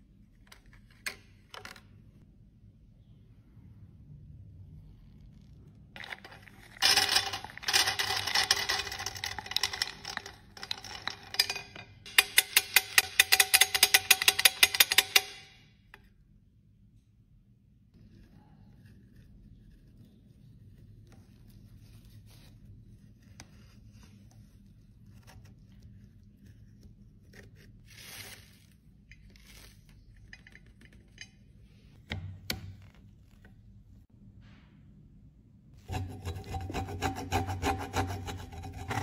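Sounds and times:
metal spatula scraping: 0:35.8 - 0:39.0.

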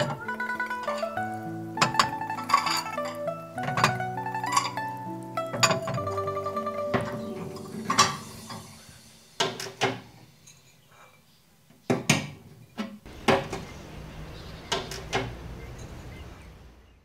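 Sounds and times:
hard objects knocking and clattering: 0:01.8 - 0:04.7.

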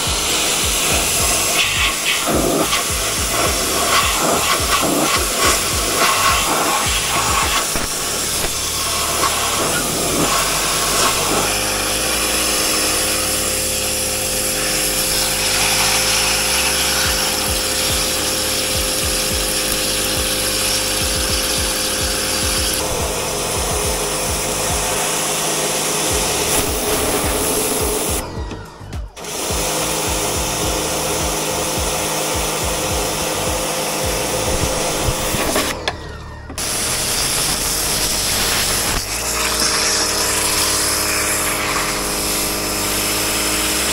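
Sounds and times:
pressure washer spray hissing: 0:00.0 - 0:28.2, 0:29.2 - 0:35.8, 0:36.6 - 0:43.9
washer pump humming: 0:00.0 - 0:43.9.

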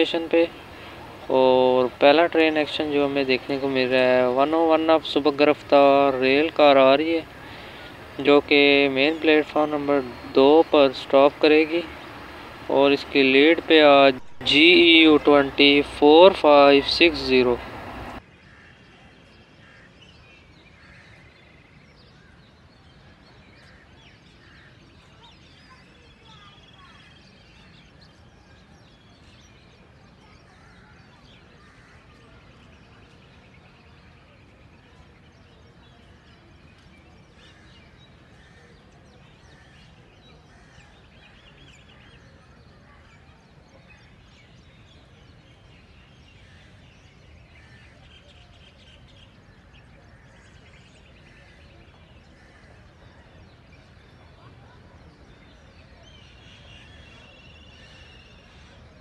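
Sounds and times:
low steady hum: 0:00.0 - 0:18.2
faint birds chirping: 0:00.0 - 0:59.0.

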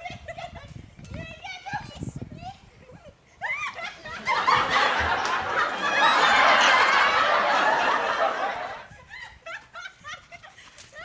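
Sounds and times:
people laughing and shrieking: 0:03.4 - 0:11.0.

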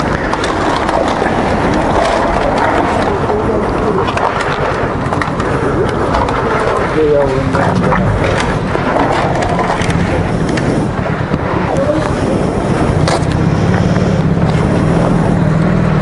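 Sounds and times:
motorcycle engine idling: 0:09.9 - 0:16.0.

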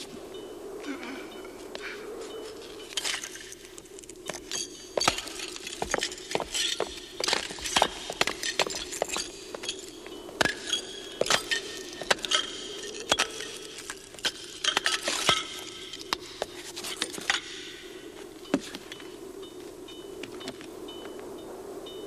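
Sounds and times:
glass and metal clinking and clattering: 0:04.4 - 0:15.8.

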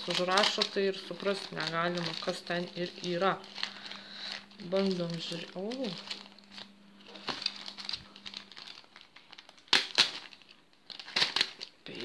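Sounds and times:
plastic bag crinkling: 0:00.0 - 0:12.0
knife cutting plastic: 0:04.7 - 0:11.7.

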